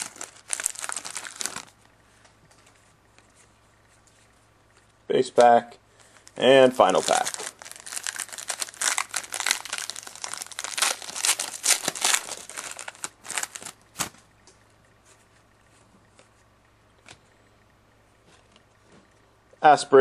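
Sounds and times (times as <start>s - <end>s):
wrapper crinkling as it is torn: 0.0s - 1.8s, 6.0s - 14.1s.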